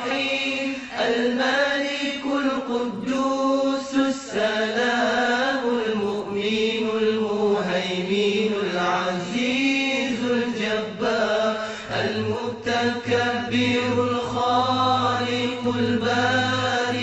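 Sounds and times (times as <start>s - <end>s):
person chanting: 0.0s - 17.0s
steady low hum: 11.9s - 17.0s.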